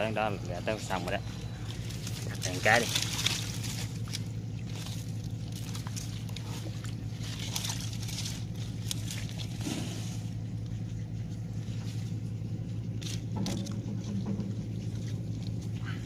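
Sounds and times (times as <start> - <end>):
low motor hum: 0.0 - 16.0
rustling and scraping in leaves: 0.0 - 16.0.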